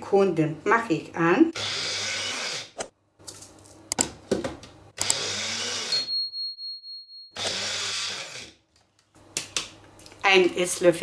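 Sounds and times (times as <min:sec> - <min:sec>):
electric grinder running: 0:01.6 - 0:02.8, 0:05.0 - 0:06.0, 0:07.4 - 0:08.6.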